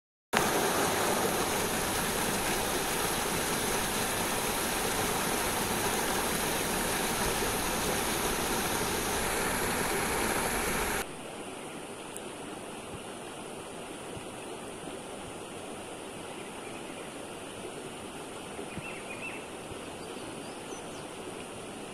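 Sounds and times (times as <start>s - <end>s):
stream rushing over rocks: 0.4s - 16.2s
gentle river flow: 0.4s - 21.9s.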